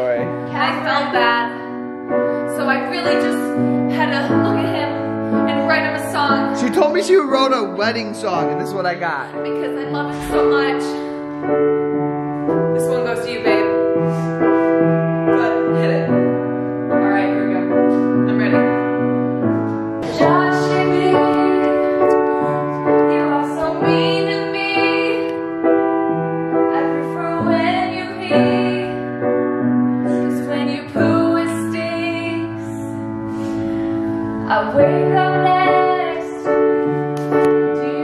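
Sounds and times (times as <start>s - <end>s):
piano chords: 0.0s - 38.0s
woman singing: 0.5s - 1.7s, 2.5s - 6.6s, 20.0s - 25.5s, 26.7s - 29.1s, 30.1s - 33.0s, 34.4s - 36.5s, 37.6s - 38.0s.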